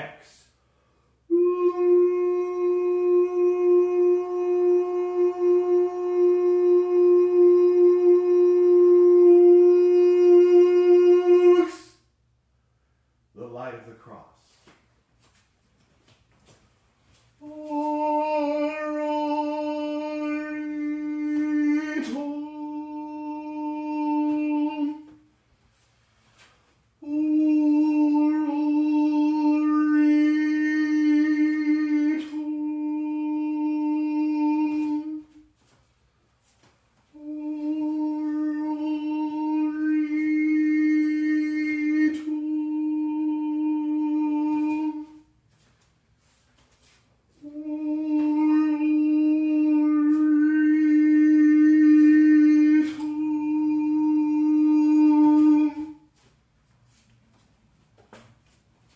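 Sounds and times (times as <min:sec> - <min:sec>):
man chanting on a low pitch: 0:01.3 - 0:12.0, 0:17.4 - 0:25.2, 0:27.0 - 0:35.4, 0:37.1 - 0:45.2, 0:47.4 - 0:56.1.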